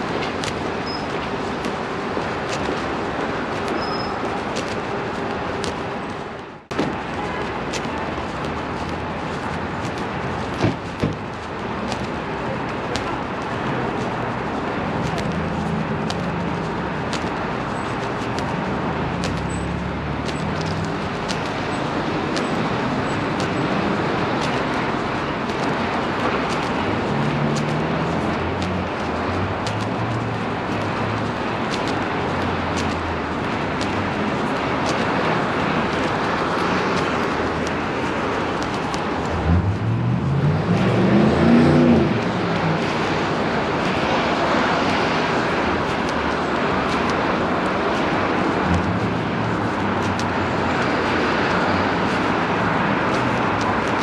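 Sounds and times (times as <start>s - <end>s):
city traffic noise: 0.0s - 54.0s
passing cars: 0.0s - 54.0s
car accelerating past: 39.4s - 42.2s.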